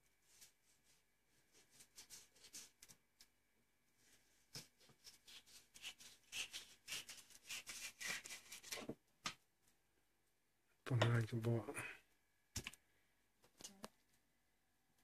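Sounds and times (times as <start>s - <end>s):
knife scraping fish fillet: 4.6s - 8.8s.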